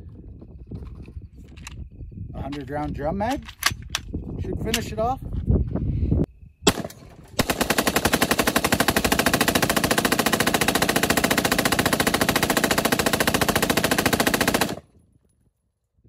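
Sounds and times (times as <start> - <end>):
rifle rapid fire: 6.7 - 14.9.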